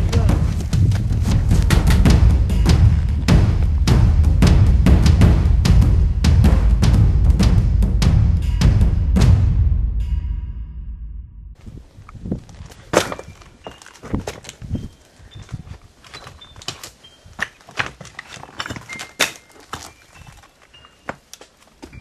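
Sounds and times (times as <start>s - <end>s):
footsteps on rocky ground: 0.0s - 4.2s, 11.6s - 22.0s.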